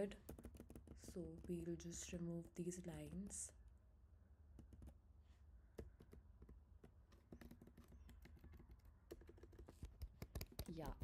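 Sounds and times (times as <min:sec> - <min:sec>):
computer keyboard keystrokes: 0:07.1 - 0:11.0.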